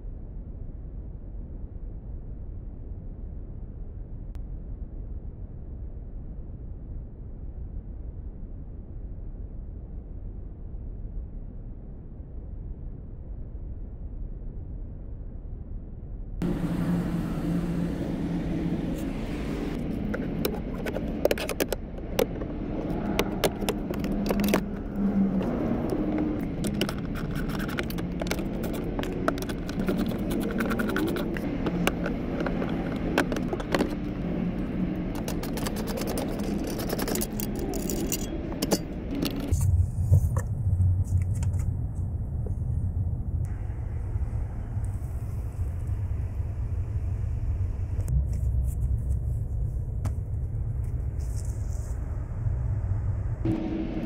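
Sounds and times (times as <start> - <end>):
low rumble: 0.0 - 54.0
steady low hum: 0.0 - 54.0
plastic trim clicking and scraping: 20.0 - 34.1, 35.2 - 39.5.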